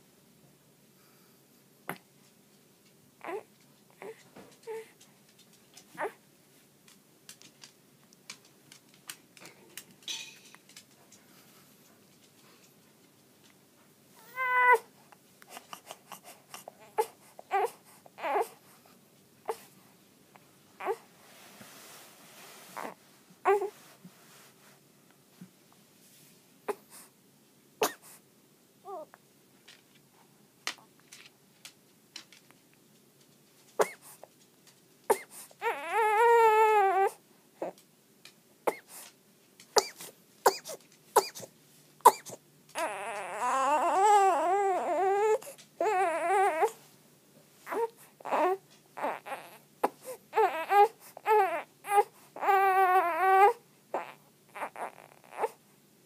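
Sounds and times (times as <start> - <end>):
baby grunts and whimpers: 3.2 - 5.0, 15.5 - 18.6, 19.4 - 19.7, 20.8 - 21.1, 22.8 - 23.8, 33.8 - 34.2, 35.1 - 37.8, 38.7 - 39.1, 39.8 - 46.8, 47.6 - 55.6
baby squeaking: 50.4 - 55.6.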